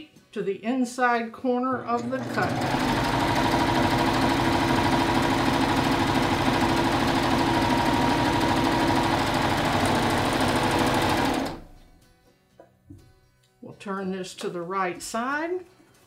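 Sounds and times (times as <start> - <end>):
serger machine humming: 1.8 - 11.7.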